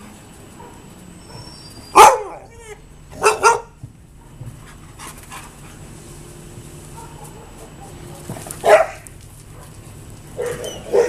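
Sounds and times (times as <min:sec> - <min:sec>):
dogs barking: 0:00.5 - 0:04.4, 0:06.8 - 0:11.0.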